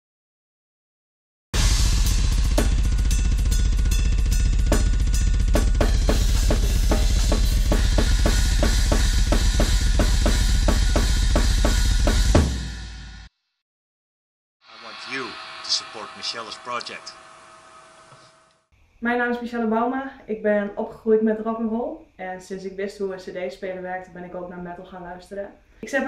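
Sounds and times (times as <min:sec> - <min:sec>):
metal drumming on drum kit: 0:01.6 - 0:12.9
cymbal ringing: 0:01.6 - 0:13.1, 0:14.7 - 0:18.4.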